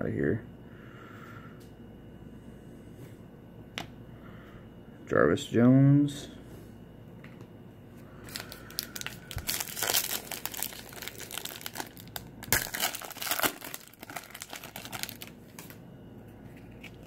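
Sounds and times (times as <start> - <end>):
foil wrapper tearing and crinkling: 8.3 - 15.8, 16.6 - 17.0.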